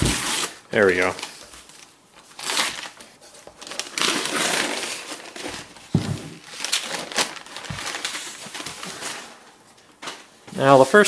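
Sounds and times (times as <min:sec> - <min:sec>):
plastic wrapping crinkling: 0:00.0 - 0:10.8
dull thump: 0:05.9 - 0:06.4.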